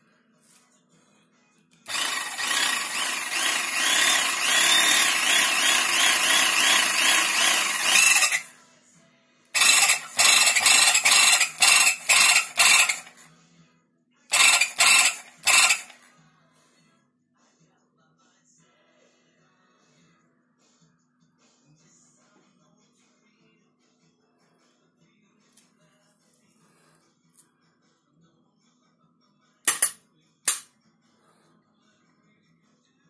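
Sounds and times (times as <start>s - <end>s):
hydraulic pump motor running: 1.9s - 8.5s, 9.6s - 13.2s, 14.3s - 16.0s.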